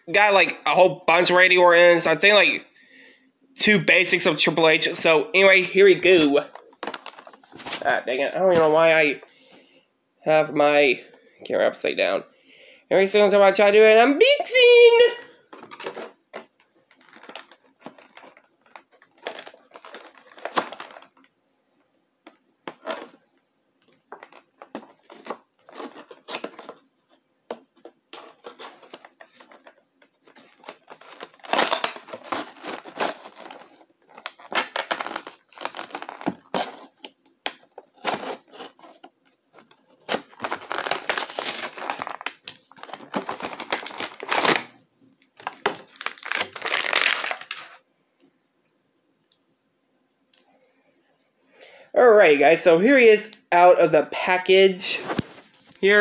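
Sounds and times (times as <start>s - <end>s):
blister packaging tearing and crinkling: 6.5s - 7.9s, 16.9s - 21.3s, 24.1s - 27.2s, 27.8s - 44.8s, 45.4s - 47.8s.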